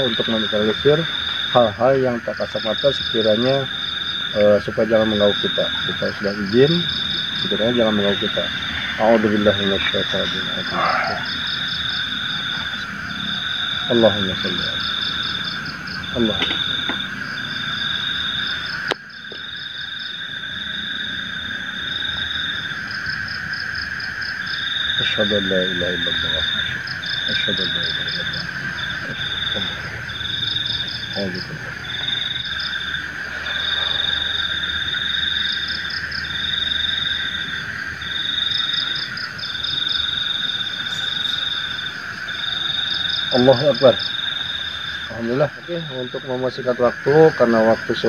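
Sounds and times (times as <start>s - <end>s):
dense hum of frog calls: 0.0s - 48.0s
high cricket trill: 0.0s - 48.0s
fast pulsing buzz: 25.8s - 45.1s.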